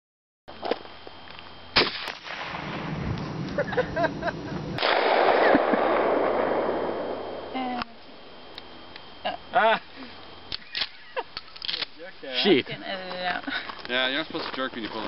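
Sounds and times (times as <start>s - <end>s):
outdoor background noise: 0.5s - 15.0s
shotgun shot: 1.8s - 3.0s, 4.8s - 7.3s.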